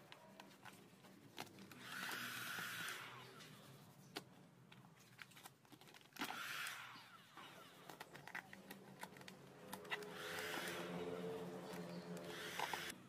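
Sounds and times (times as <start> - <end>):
heat gun blowing: 1.8 - 3.4, 9.9 - 12.9.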